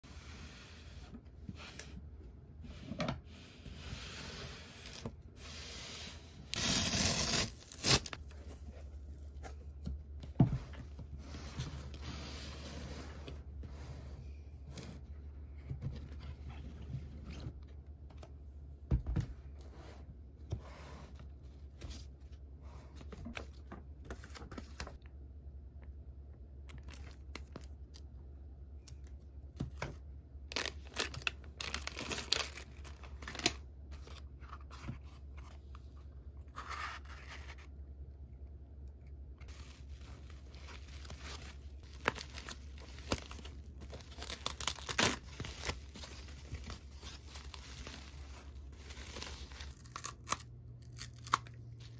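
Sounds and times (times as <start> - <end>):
plastic wrappers crinkling: 30.4 - 33.7, 39.5 - 51.9.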